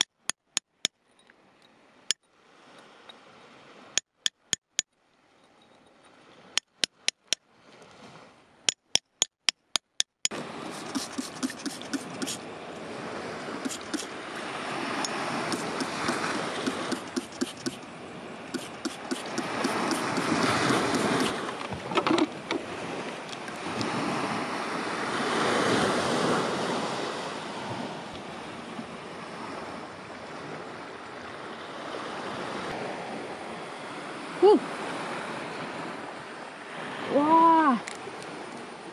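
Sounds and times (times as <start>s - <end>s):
metal chisel tapping on rock: 0.0s - 1.3s, 4.0s - 4.8s, 6.6s - 7.4s, 8.7s - 12.4s, 13.7s - 14.1s, 15.0s - 17.8s, 18.6s - 21.4s.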